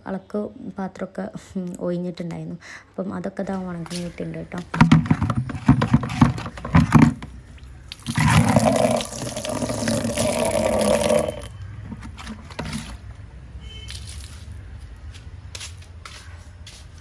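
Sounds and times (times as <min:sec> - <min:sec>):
water pouring out in a rush: 0:07.9 - 0:11.5.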